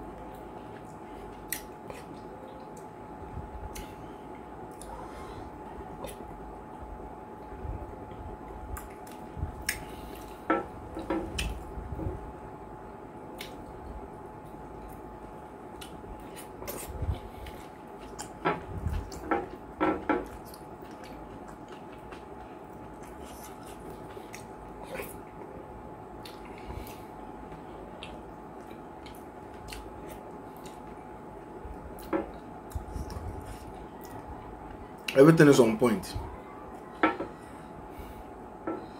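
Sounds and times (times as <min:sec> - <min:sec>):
faint steady hum: 0:00.0 - 0:38.9
chewing: 0:15.7 - 0:25.5, 0:26.2 - 0:31.0.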